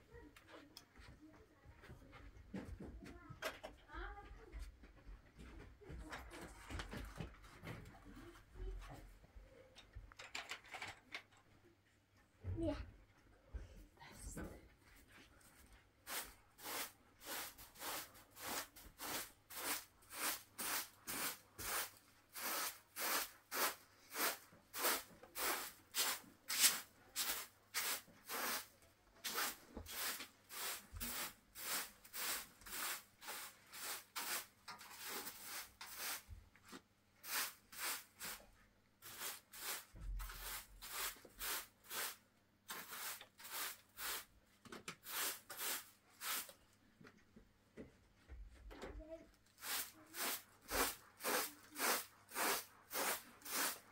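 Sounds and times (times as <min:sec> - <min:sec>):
hand broom sweeping floor: 0:15.0 - 0:44.4, 0:45.0 - 0:46.6, 0:49.6 - 0:53.9.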